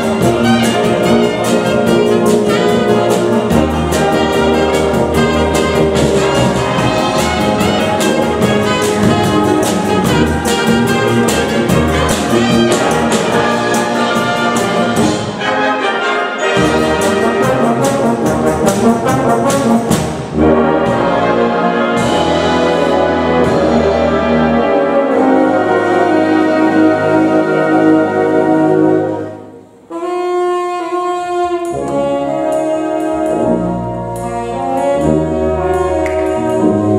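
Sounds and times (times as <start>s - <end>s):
wind band playing pop songs: 0.0s - 36.9s.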